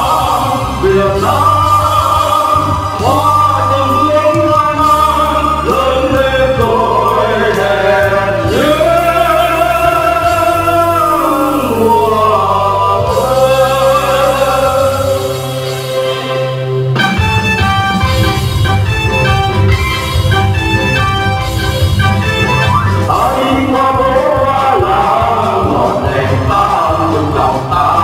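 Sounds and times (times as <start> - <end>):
male vocal trio singing: 0.0 - 16.1, 23.1 - 28.0
instrumental accompaniment with bass: 0.0 - 28.0.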